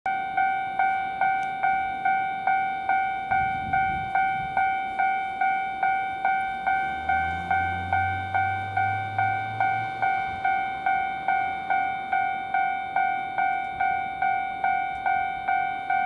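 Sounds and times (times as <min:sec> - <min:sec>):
level crossing bell ringing: 0:00.1 - 0:16.0
low train rumble: 0:00.3 - 0:16.0.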